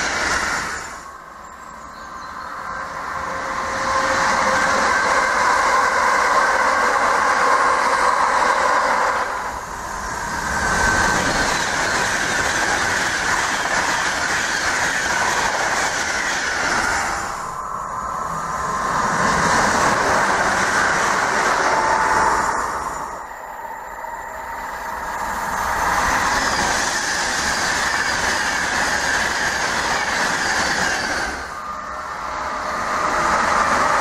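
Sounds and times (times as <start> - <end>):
train wheels rattling on rails: 0.0 - 34.0.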